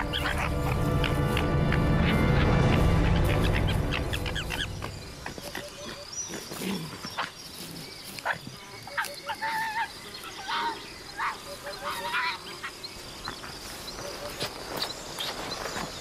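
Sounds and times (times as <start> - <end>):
music: 0.0 - 5.4
faint chirping insects: 0.0 - 16.0.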